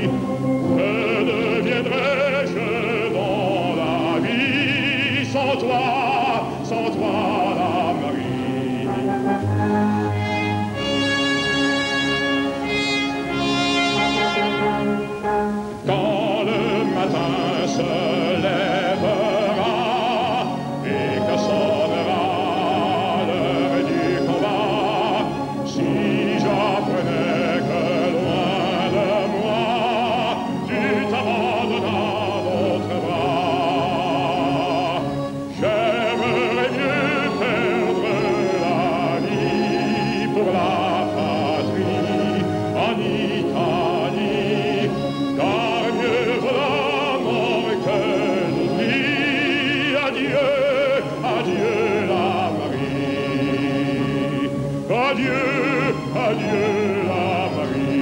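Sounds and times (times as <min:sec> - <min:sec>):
man singing operatically: 0:00.0 - 0:58.0
orchestral accompaniment: 0:00.0 - 0:58.0.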